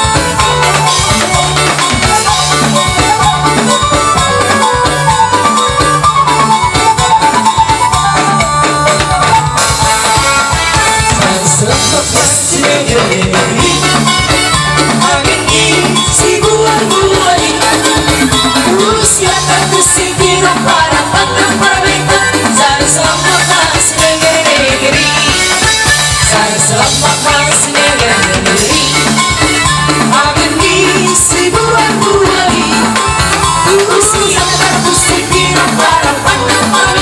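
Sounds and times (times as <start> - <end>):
drum kit beat: 0.0 - 37.0
electronic keyboard melody: 0.0 - 37.0
woman singing: 11.1 - 14.1, 14.8 - 25.6, 26.2 - 37.0.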